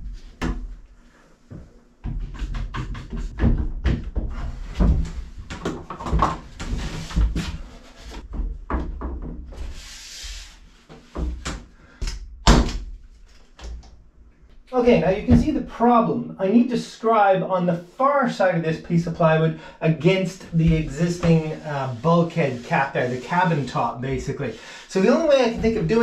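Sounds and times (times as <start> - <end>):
wooden knocks and bumps: 1.5 - 9.6, 14.8 - 15.6
scraping rub: 9.6 - 11.1, 20.0 - 26.0.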